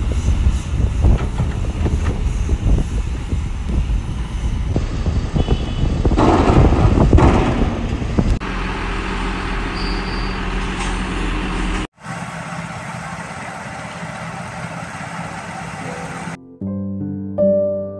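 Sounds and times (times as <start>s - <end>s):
excavator engine running: 0.9s - 16.4s
road roller diesel engine running: 7.7s - 16.4s.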